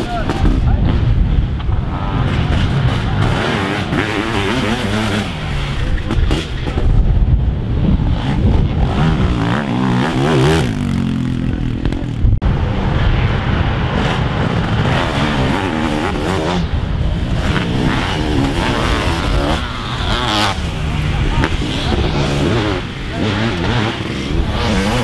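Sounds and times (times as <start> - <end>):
racing engines revving: 0.0 - 7.1, 12.6 - 25.0.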